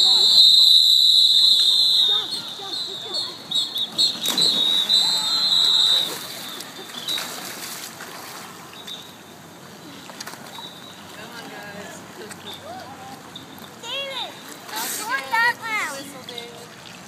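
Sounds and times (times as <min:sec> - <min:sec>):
whistles blowing wavering blasts: 0:00.0 - 0:07.4.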